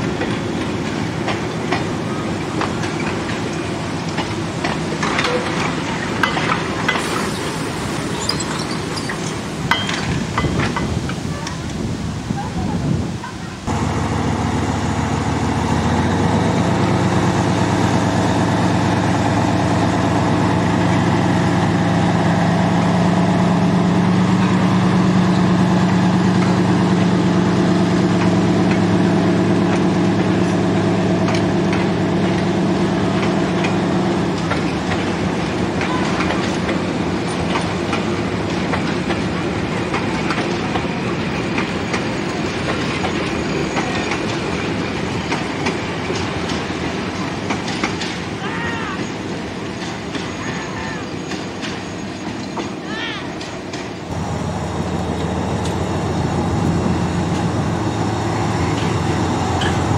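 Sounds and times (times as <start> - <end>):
diesel locomotive engine running: 0.0 - 11.3, 13.6 - 59.9
train wheels clicking over rail joints: 0.0 - 11.8, 24.3 - 59.9.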